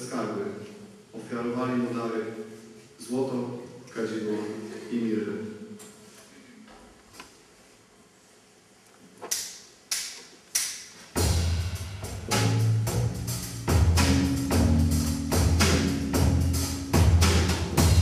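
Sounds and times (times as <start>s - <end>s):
deep held bass notes: 11.2s - 18.0s
steady percussion beat: 11.2s - 18.0s.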